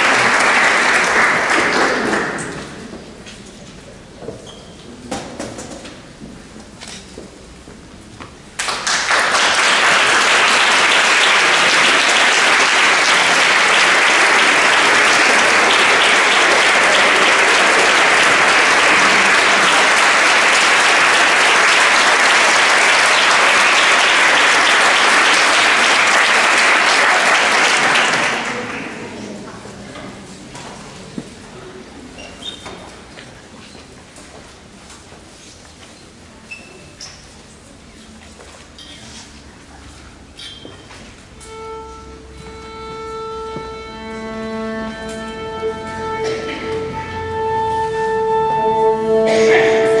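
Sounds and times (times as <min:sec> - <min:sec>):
audience applauding: 0:00.0 - 0:02.8, 0:08.6 - 0:29.3.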